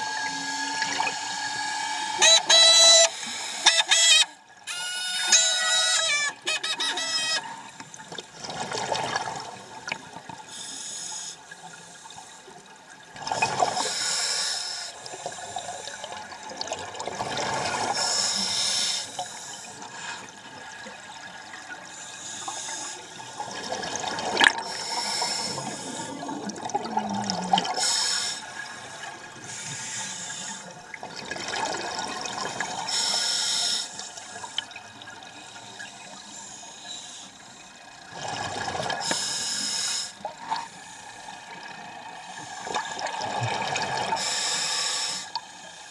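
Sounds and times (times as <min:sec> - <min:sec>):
exhalation bubbles underwater: 0:26.2 - 0:27.8.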